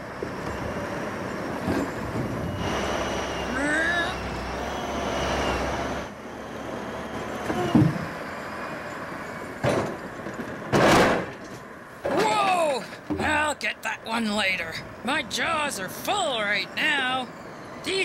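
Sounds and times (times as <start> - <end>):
log loader engine running: 0.0 - 18.0
wooden logs knocking together: 9.6 - 13.4.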